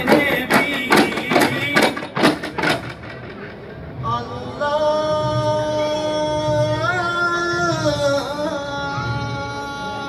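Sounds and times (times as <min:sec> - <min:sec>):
frame drum thuds: 0:00.0 - 0:03.6
man singing long notes: 0:04.0 - 0:10.0.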